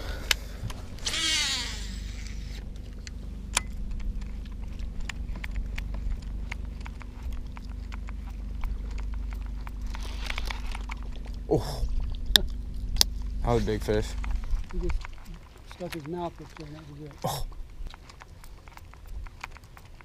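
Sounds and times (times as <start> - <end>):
electric motor humming: 0.0 - 17.2
fishing reel whirring: 1.0 - 2.6.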